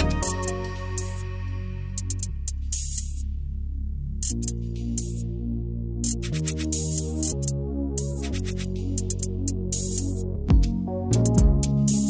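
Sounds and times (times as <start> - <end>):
synth bass notes: 0.0 - 12.0.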